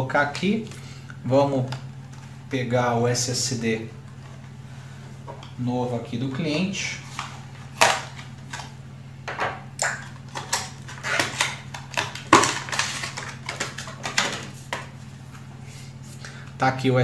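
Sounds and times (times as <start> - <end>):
steady low hum: 0.0 - 17.0
hands handling packaging: 10.0 - 15.4.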